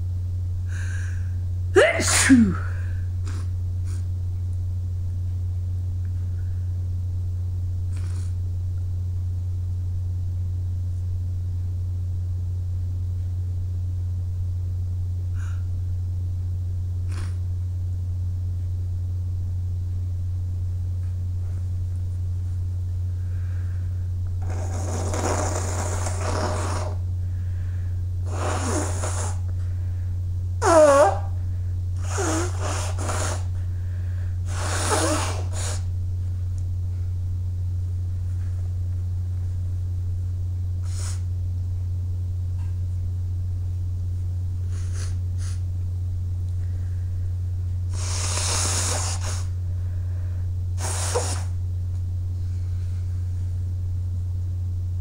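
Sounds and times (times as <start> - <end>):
steady low hum: 0.0 - 55.0
person blowing nose: 1.8 - 4.0, 7.9 - 8.4, 17.1 - 17.4, 24.4 - 27.0, 28.2 - 29.5, 30.6 - 31.4, 32.0 - 33.6, 34.4 - 35.9, 40.8 - 41.3, 44.6 - 45.6, 47.9 - 49.6, 50.8 - 51.6.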